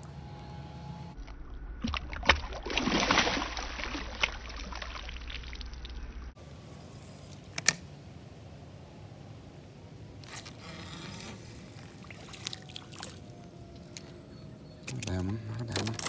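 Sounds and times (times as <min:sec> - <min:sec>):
fish splashing in water: 0:01.8 - 0:06.2, 0:11.4 - 0:14.2.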